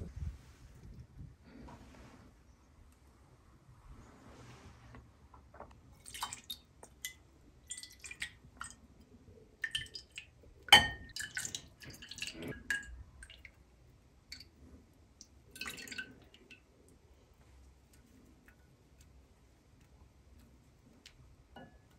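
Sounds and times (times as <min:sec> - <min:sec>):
liquid splashing and dripping: 0:06.0 - 0:08.8, 0:09.6 - 0:13.7, 0:15.2 - 0:17.0.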